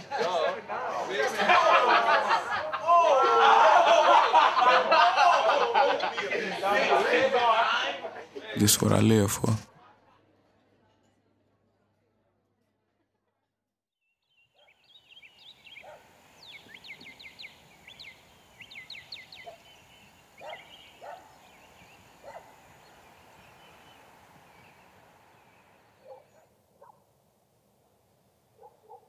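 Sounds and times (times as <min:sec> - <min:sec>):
birds chirping descending notes: 0:14.2 - 0:26.4
short lower bird calls: 0:14.6 - 0:26.5.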